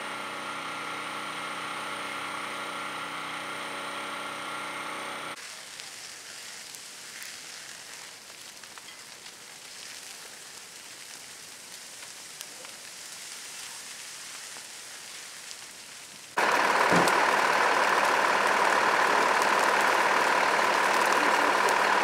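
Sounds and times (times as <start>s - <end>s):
fire crackling and popping: 5.4s - 22.0s
hiss of flames: 5.4s - 22.0s.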